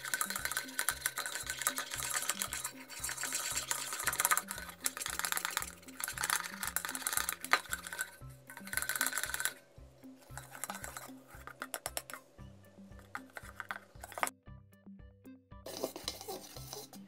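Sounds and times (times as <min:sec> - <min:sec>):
whisk beating slime in a bowl: 0:00.0 - 0:09.6, 0:10.2 - 0:12.2, 0:13.0 - 0:14.3, 0:15.7 - 0:17.0
background music with bass line: 0:00.0 - 0:17.0.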